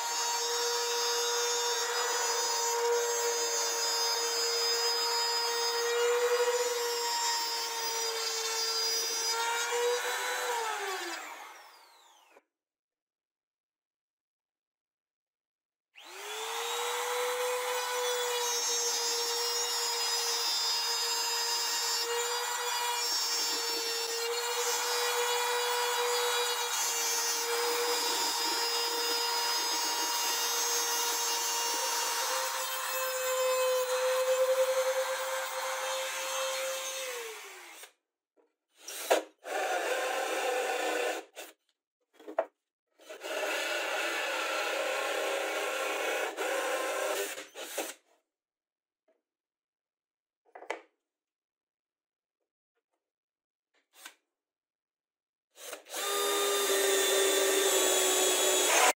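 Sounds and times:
router motor whine cutting: 0:00.0 - 0:12.4, 0:16.0 - 0:37.9, 0:55.6 - 0:58.9.

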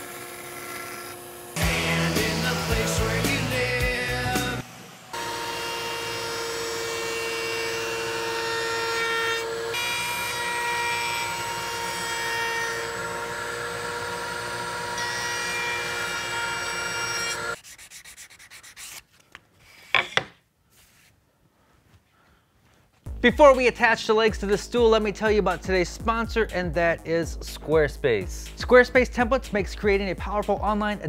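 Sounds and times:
router motor cutting wood: 0:00.0 - 0:17.6.

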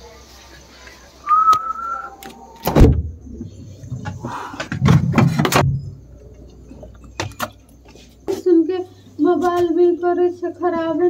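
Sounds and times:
refrigerator door knocking and rattling: 0:02.7 - 0:03.2.

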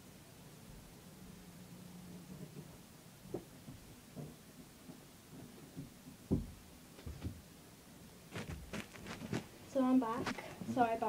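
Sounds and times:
low thuds and knocks: 0:05.7 - 0:07.4.

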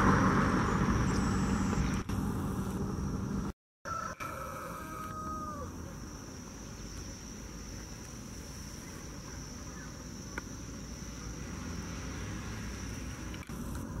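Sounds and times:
high-pitched whine: 0:00.0 - 0:03.6.

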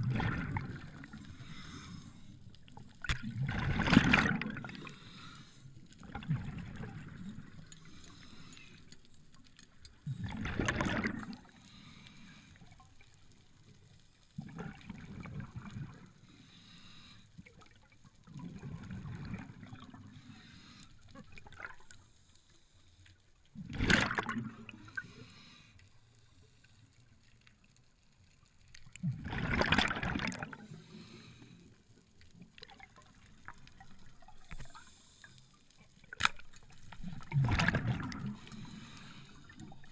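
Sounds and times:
rushing bubbling water bursts: 0:00.0 - 0:01.6, 0:03.0 - 0:05.1, 0:06.0 - 0:07.6, 0:10.1 - 0:11.5, 0:23.6 - 0:25.0, 0:29.0 - 0:30.8, 0:36.7 - 0:39.9.

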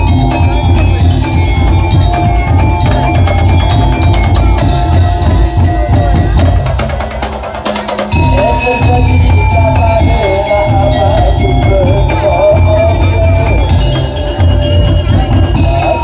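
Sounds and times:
drum ensemble playing: 0:00.0 - 0:16.0
melody over drums: 0:00.0 - 0:16.0.

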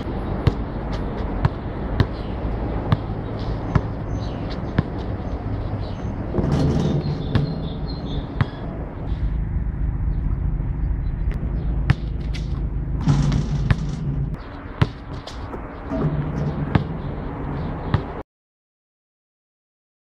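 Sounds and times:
basketball bouncing on asphalt: 0:00.0 - 0:08.8, 0:11.3 - 0:18.2
steady low rumble: 0:04.7 - 0:14.7, 0:15.4 - 0:18.2.

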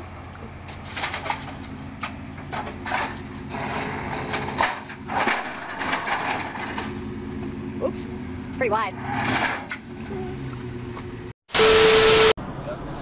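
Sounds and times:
truck engine idling: 0:00.0 - 0:08.7.

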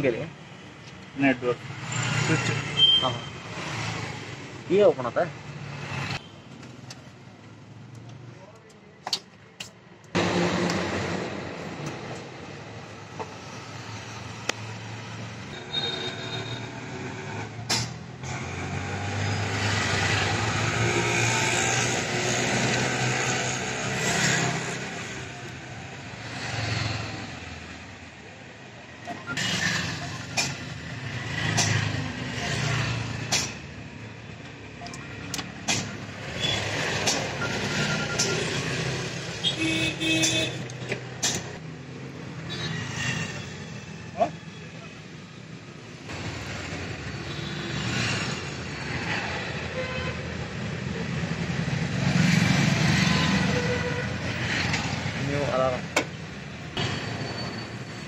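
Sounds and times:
road traffic passing: 0:00.0 - 0:58.0
clicks and knocks from tools: 0:31.5 - 0:31.9.

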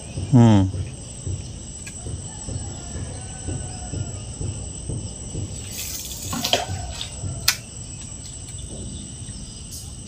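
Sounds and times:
insects chirping: 0:00.0 - 0:10.0.

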